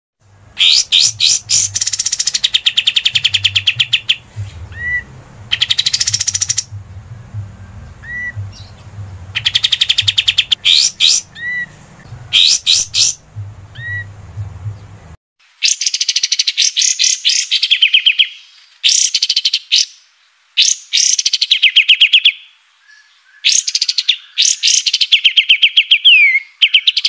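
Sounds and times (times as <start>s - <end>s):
low hum: 0.2s - 15.2s
songbird chattering trills: 0.5s - 15.1s
soft rising whistles: 9.7s - 14.1s.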